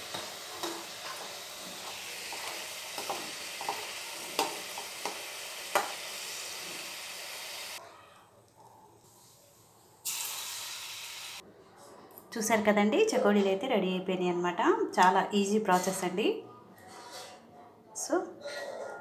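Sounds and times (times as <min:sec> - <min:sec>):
dough frying in hot oil: 0:01.8 - 0:07.8.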